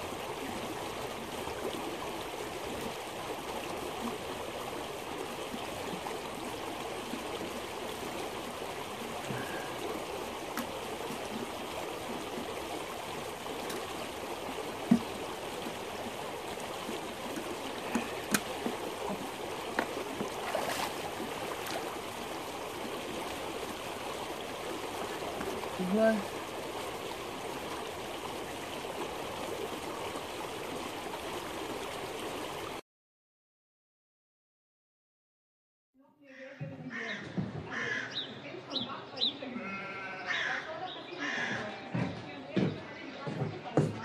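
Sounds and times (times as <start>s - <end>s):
stream running over stones: 0.0s - 32.8s.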